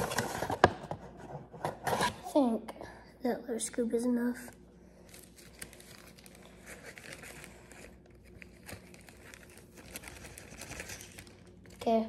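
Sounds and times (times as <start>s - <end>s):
bag crinkling and rustling: 5.0s - 12.0s.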